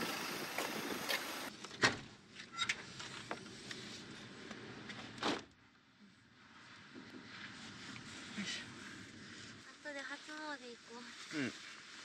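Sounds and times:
outdoor background noise: 0.0 - 12.0
rustle: 6.1 - 12.0.

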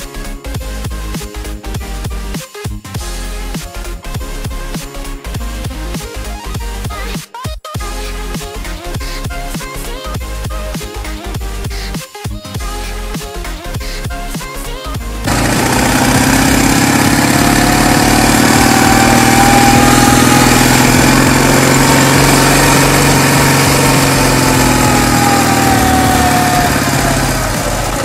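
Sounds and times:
motorcycle engine running: 15.2 - 28.0.

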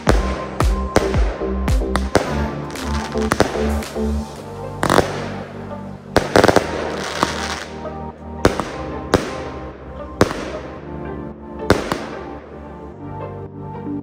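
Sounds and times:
background music: 0.0 - 14.0
fireworks reports with hiss: 6.2 - 7.8.

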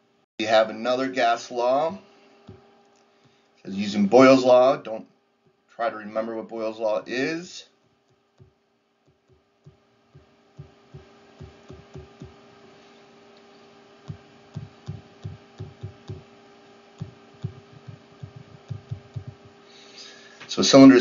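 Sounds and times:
low steady hum: 0.0 - 21.0
stylus tapping on tablet screen: 8.0 - 12.4, 14.1 - 16.2, 17.0 - 19.6.

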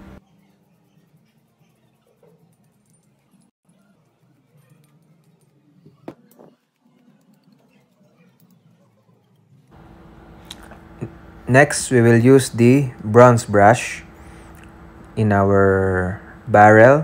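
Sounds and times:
toothbrush scrubbing metal: 0.2 - 5.8.

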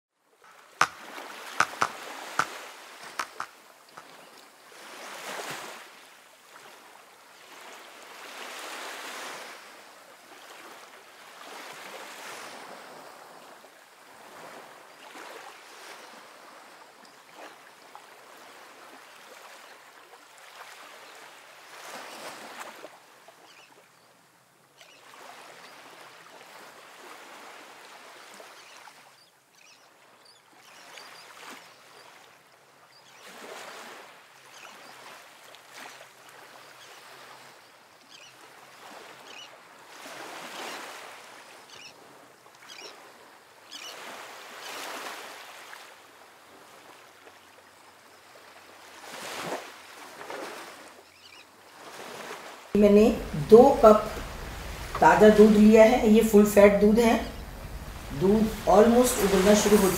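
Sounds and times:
sharp clicks: 0.5 - 1.0, 1.6 - 3.6.

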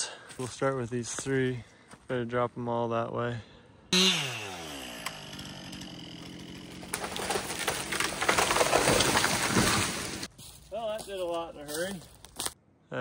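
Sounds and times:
chainsaw idling: 4.0 - 8.9
tree cracking and crashing down: 4.7 - 10.3.

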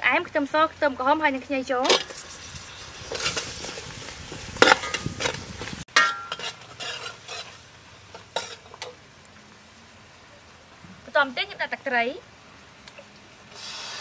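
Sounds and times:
sauce bubbling and sizzling: 1.0 - 11.5, 12.3 - 14.0
ladle scraping a pot: 1.8 - 8.9
metal clinks on a pot: 5.9 - 6.6.

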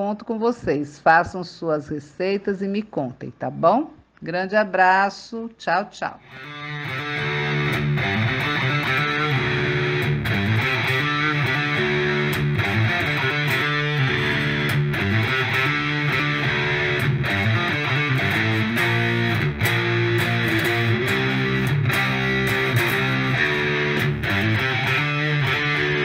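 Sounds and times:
rock music with electric guitar: 6.2 - 26.0.

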